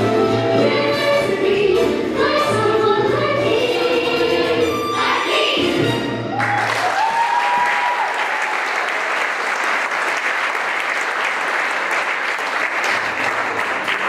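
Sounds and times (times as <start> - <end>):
audience clapping: 6.4 - 14.0.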